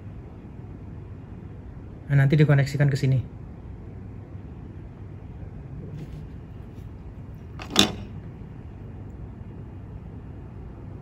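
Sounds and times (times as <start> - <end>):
sharp handling noise: 7.4 - 8.3.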